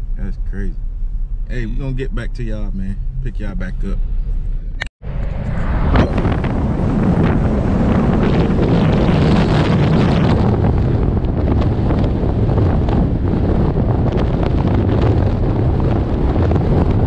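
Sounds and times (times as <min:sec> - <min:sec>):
road and tyre rumble: 0:00.0 - 0:17.0
wind buffeting microphone: 0:05.0 - 0:17.0.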